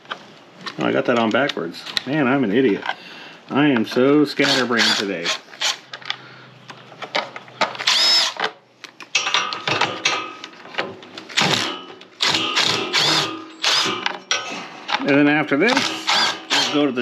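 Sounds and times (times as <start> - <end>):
power driver motor whining: 7.8 - 8.4.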